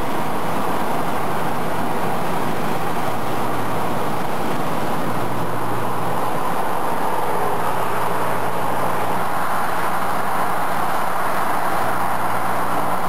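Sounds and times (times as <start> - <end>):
car road and wind noise: 0.0 - 13.0.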